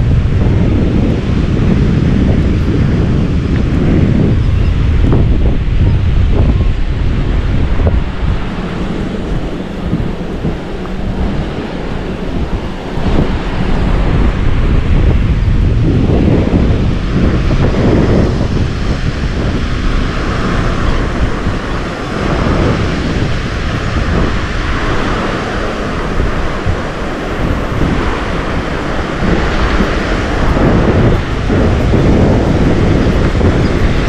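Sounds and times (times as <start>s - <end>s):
wind buffeting microphone: 0.0s - 34.0s
small waves breaking: 18.4s - 34.0s.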